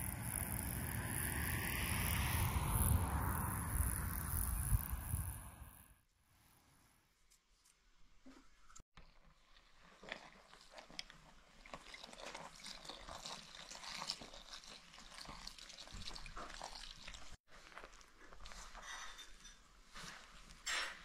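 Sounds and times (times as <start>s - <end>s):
liquid pouring from jug: 9.0s - 17.4s
hand mixing dough: 9.0s - 18.8s.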